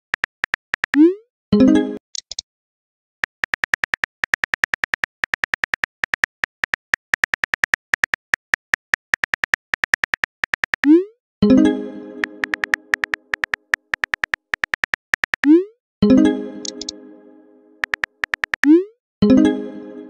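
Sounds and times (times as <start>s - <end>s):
phone keyboard key clicks: 0.0s - 1.0s, 2.1s - 2.4s, 3.2s - 10.9s, 12.4s - 15.5s, 16.6s - 16.9s, 17.8s - 18.7s.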